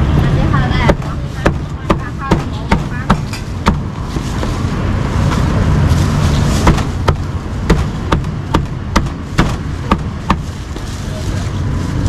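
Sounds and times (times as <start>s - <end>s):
street traffic rumble: 0.0s - 12.0s
cleaver chopping on board: 0.9s - 3.9s, 6.6s - 10.4s.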